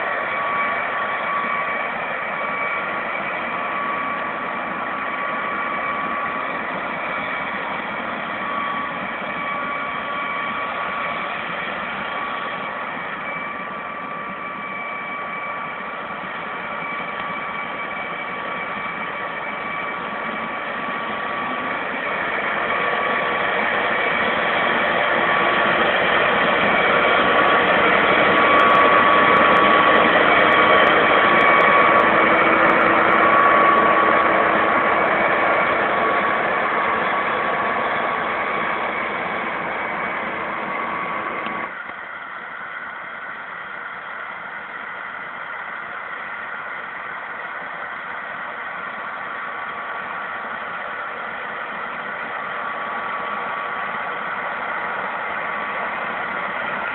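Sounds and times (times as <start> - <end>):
harvester engine droning: 0.0 - 56.9
high machine whine: 0.0 - 56.9.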